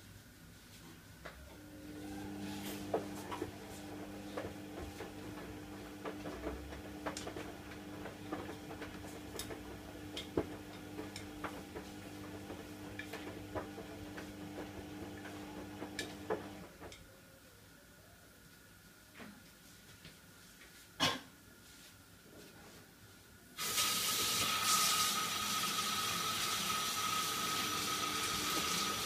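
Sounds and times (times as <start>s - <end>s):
kitchen tap running: 2.2s - 16.6s, 23.6s - 29.0s.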